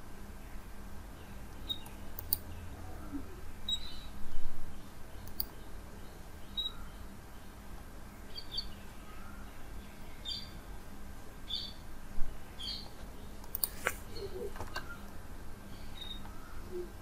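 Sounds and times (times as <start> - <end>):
bird chirping: 0.4 - 10.7, 11.4 - 17.0
sharp clicks: 1.7 - 2.5, 5.2 - 5.6, 12.8 - 14.0.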